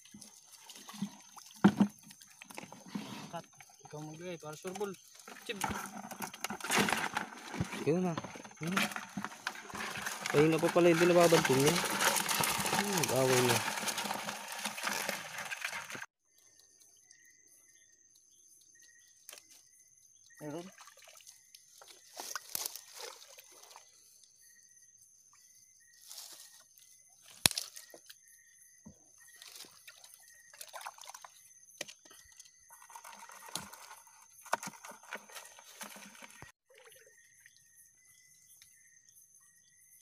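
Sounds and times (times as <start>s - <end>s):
shallow water splashing: 8.5s - 16.1s.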